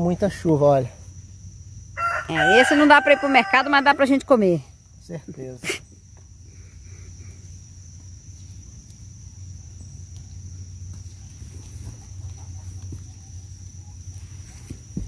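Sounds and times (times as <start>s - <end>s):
insects droning: 0.0s - 15.0s
chickens clucking: 11.6s - 13.9s.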